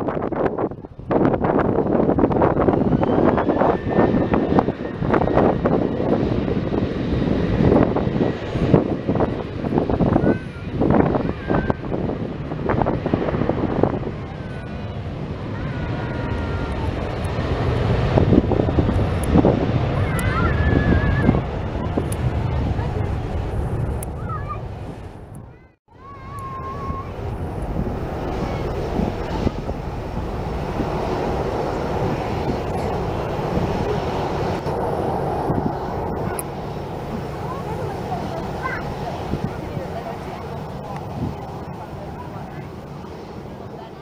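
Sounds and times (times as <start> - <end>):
jet engine roar: 0.0 - 44.0
wind gusting on microphone: 0.0 - 44.0.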